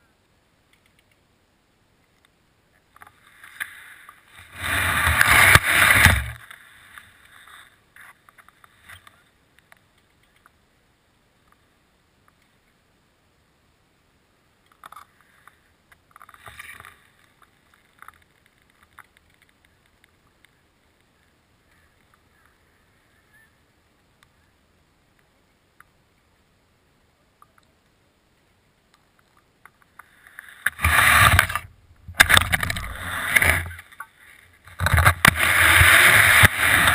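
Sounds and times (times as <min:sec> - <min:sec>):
faint clicks: 0:00.6 - 0:01.3, 0:02.0 - 0:04.4, 0:05.1 - 0:10.6, 0:11.4 - 0:12.8, 0:14.6 - 0:24.5, 0:25.1 - 0:26.3, 0:27.3 - 0:36.9.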